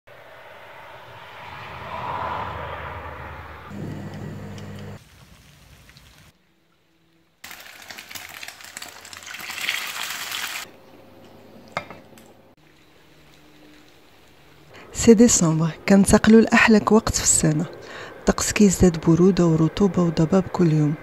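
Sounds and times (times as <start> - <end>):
rain on plants: 4.0 - 6.3, 7.4 - 10.7
low steady hum: 10.7 - 21.0.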